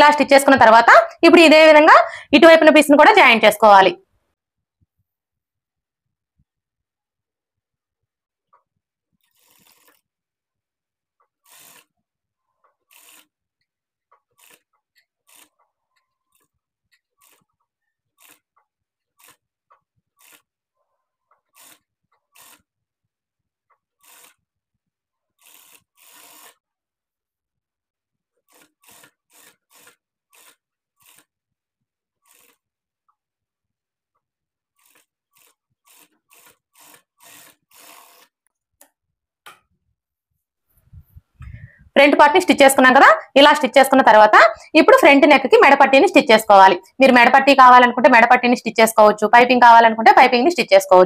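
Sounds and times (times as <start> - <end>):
sewing machine stitching: 9.1 - 10.2, 11.2 - 22.8, 23.8 - 24.6, 25.2 - 26.7, 28.3 - 31.4, 32.2 - 32.8, 34.7 - 38.5.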